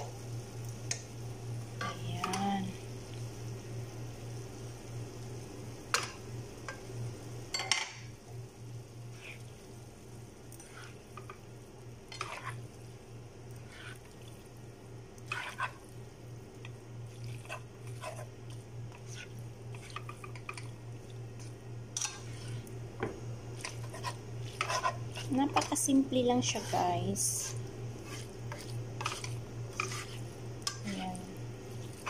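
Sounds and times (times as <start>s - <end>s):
wet squishing of spaghetti: 13.5s - 14.6s, 17.0s - 21.6s, 31.6s - 32.0s.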